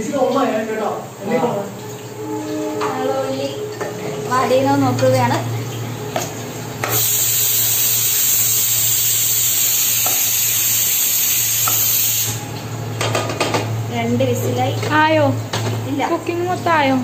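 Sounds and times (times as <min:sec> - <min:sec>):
onions sizzling in oil: 0:03.8 - 0:12.9.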